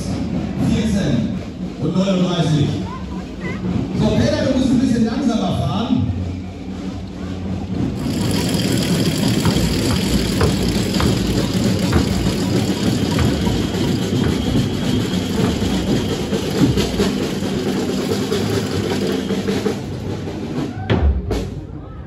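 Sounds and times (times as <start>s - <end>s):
bass drums beating march rhythm: 0.0s - 21.6s
low engine hum: 6.4s - 20.3s.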